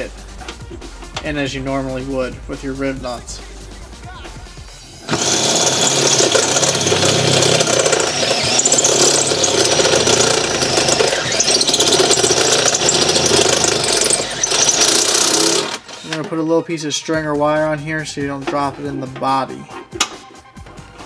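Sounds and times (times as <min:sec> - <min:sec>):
drill cutting sheet metal: 0:05.0 - 0:16.3.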